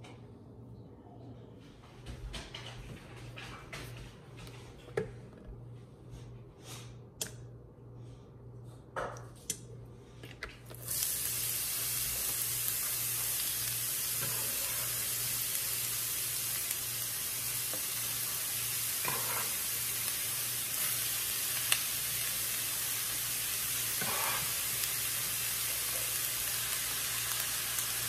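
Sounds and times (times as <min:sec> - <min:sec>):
onion sizzling in hot oil: 0:10.8 - 0:28.0.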